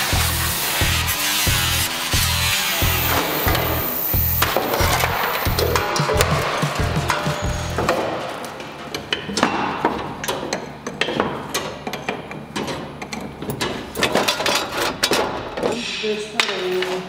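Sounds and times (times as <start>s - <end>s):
metal knocking and clanking: 4.4s - 17.0s.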